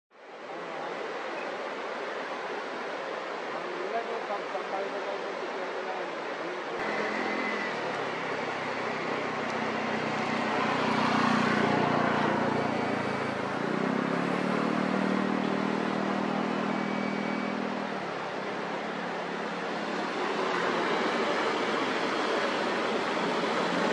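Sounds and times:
steady rushing background noise: 0.2s - 23.9s
vehicle engine humming: 6.8s - 23.9s.

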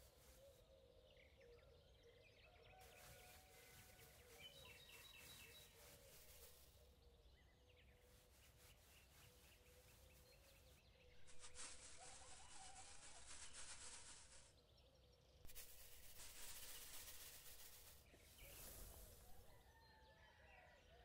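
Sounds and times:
soft outdoor hiss: 0.0s - 19.6s
faint bird chirps: 0.0s - 21.0s.

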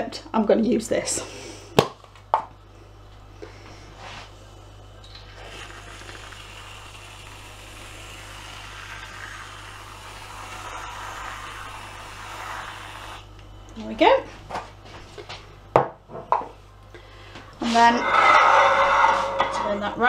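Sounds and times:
aerosol cream can hissing: 5.4s - 13.3s.

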